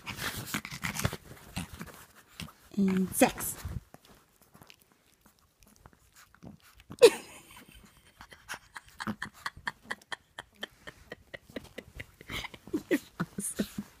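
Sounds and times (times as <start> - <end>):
dog snorting and panting: 0.0 - 10.7.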